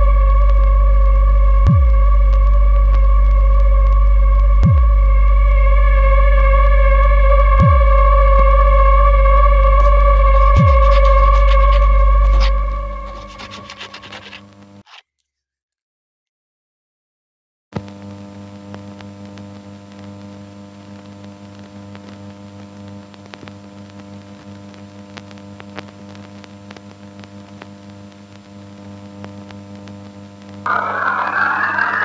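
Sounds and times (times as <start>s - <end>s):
static crackles: 0.0s - 5.1s, 7.6s - 15.0s, 17.8s - 32.0s
electrical mains hum: 0.0s - 14.8s
noisy rush rising in pitch: 0.7s - 13.6s, 30.7s - 32.0s.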